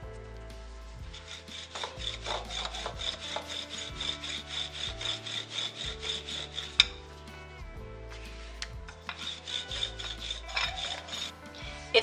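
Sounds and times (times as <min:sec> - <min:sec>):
rolling pin rubbing on dough: 0:00.0 - 0:12.0.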